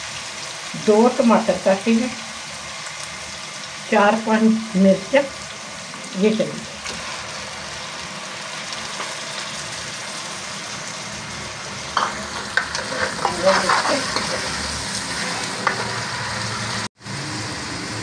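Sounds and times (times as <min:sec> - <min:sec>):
vegetables sizzling in hot oil: 0:00.0 - 0:18.0
steel ladle scraping a pot: 0:12.0 - 0:16.8.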